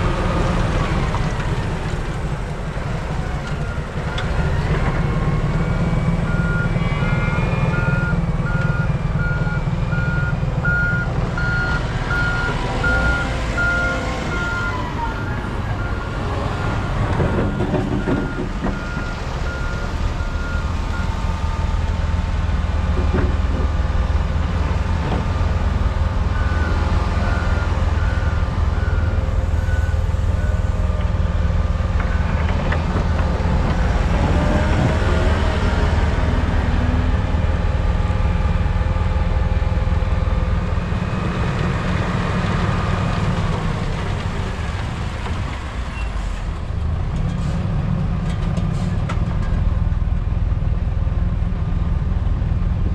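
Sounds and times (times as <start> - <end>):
heavy diesel machinery running: 0.0 - 52.9
reversing alarm beeping: 3.7 - 21.1.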